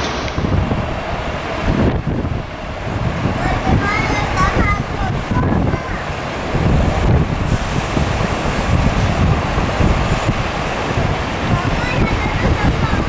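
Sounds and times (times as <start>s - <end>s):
jet engines at takeoff power: 0.0s - 13.0s
wind buffeting microphone: 0.0s - 13.0s.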